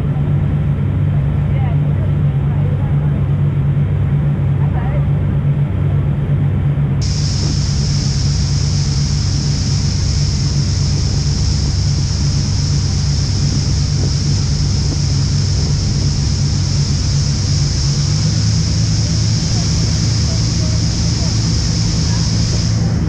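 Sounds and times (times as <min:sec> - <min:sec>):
motorboat engine droning: 0:00.0 - 0:23.0
water churning in wake: 0:00.0 - 0:23.0
steady hiss: 0:07.0 - 0:23.0.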